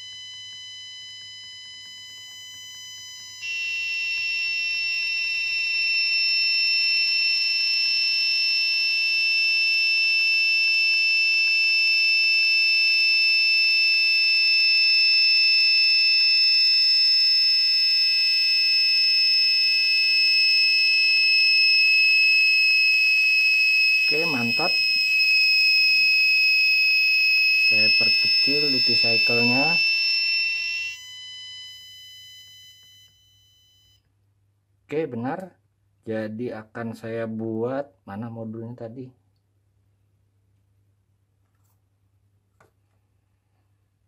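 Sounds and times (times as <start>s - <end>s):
buzzer shrill tone: 0.0s - 34.0s.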